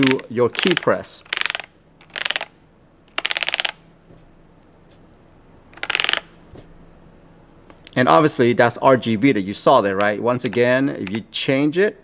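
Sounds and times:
fast typing on mechanical keyboard: 0.0 - 2.5, 3.2 - 3.8, 5.8 - 6.2.

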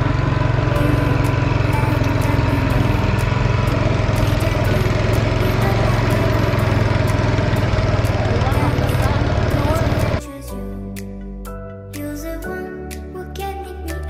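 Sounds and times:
boat engine droning: 0.0 - 10.2.

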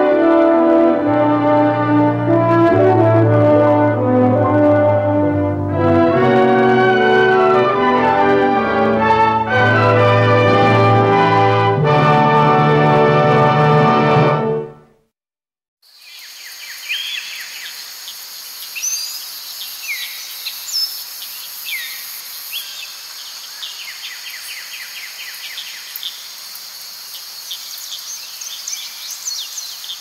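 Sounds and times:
brass music: 0.0 - 15.0
insects trilling: 15.8 - 30.0
bird chirps and whistled calls: 16.0 - 17.8, 18.6 - 26.2, 27.4 - 30.0.

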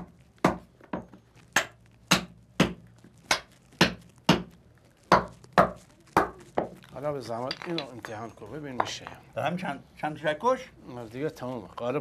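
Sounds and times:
sharp wooden knocks: 0.0 - 4.5.

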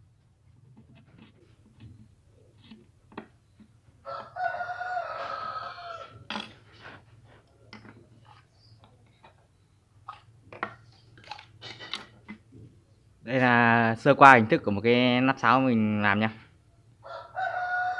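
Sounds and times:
knife scraping wood: 0.6 - 4.4, 8.1 - 8.6
rooster crowing: 4.0 - 6.3, 17.0 - 17.9.

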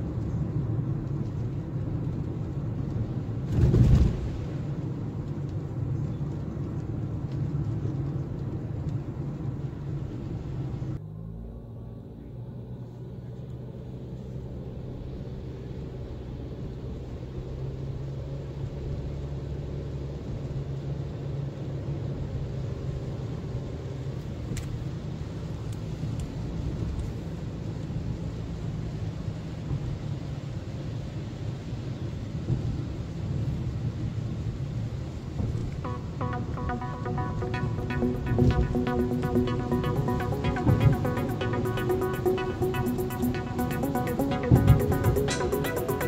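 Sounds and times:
car engine rumble: 0.0 - 46.0
tyres on wet road: 0.0 - 46.0
loud thump of car over crossing: 3.5 - 4.4.

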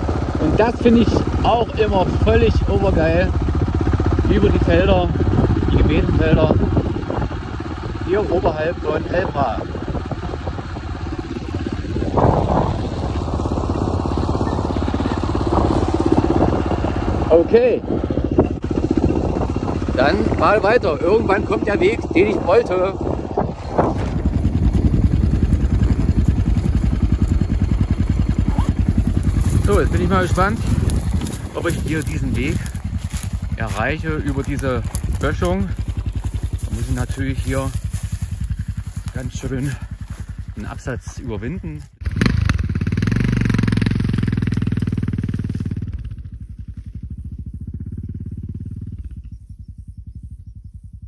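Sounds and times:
motorcycle engine idling: 0.0 - 51.0.

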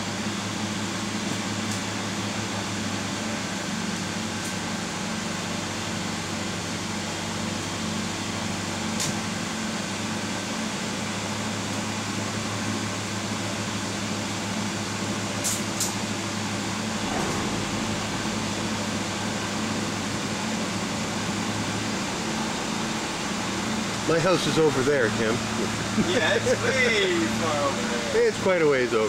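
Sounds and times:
aircraft engines droning: 0.0 - 29.0
rushing air: 16.7 - 24.1.

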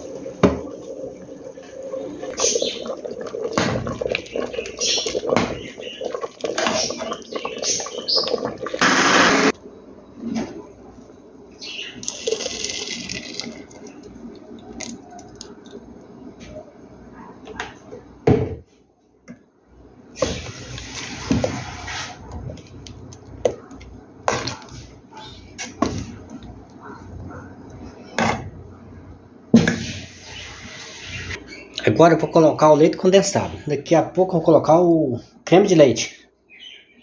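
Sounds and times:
liquid pouring into a pot: 0.0 - 8.8, 12.0 - 15.8.

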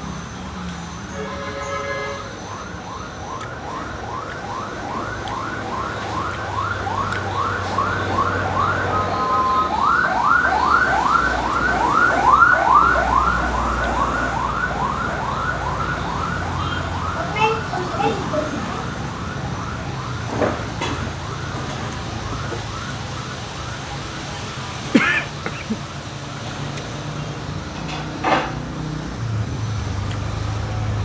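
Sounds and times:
emergency vehicle siren yelping: 1.8 - 26.2.

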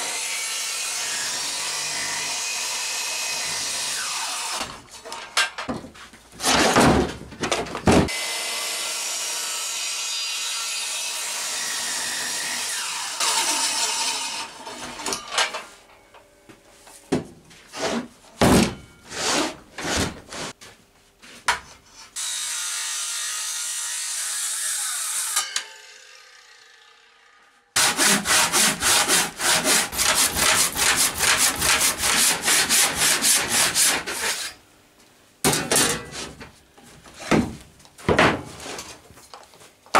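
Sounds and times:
hand saw cutting wood: 8.1 - 15.0, 19.1 - 20.6, 27.8 - 34.6.

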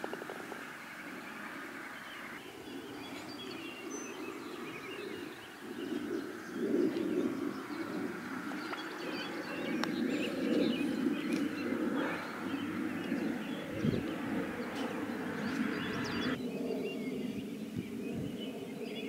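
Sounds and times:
steady low noise: 0.0 - 18.7
small birds chirping: 0.0 - 19.0.

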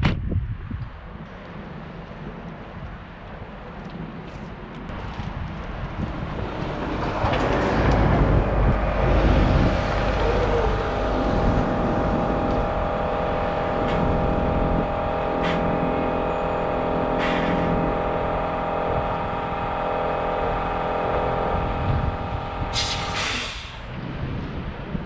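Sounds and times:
vehicle passing: 4.9 - 23.1
steady tonal machine hum: 7.7 - 23.4.

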